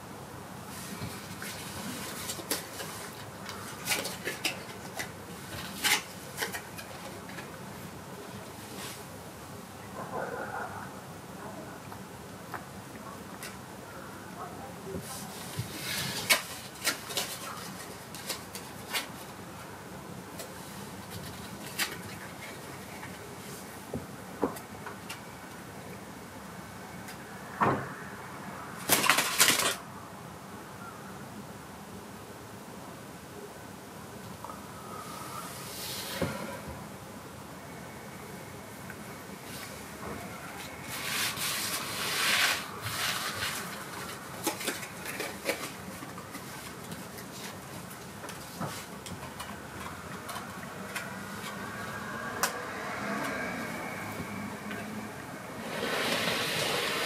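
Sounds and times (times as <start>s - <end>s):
playing cards clattering down: 28.8s - 29.8s.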